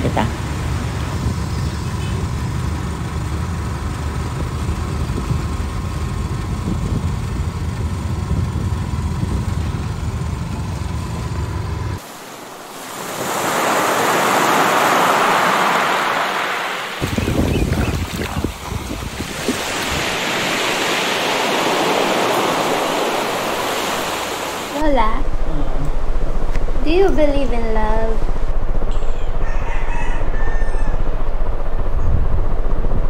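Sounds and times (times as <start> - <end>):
wind buffeting microphone: 0.0 - 10.9, 17.0 - 24.0, 31.1 - 33.0
vehicle engine and road rumble: 0.0 - 12.6, 13.7 - 33.0
sea waves washing ashore: 11.9 - 26.2.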